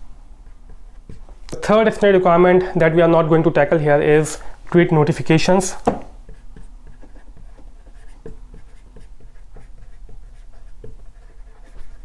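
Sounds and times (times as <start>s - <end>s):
marker squeaking on whiteboard: 0.4s - 1.8s, 5.8s - 12.0s.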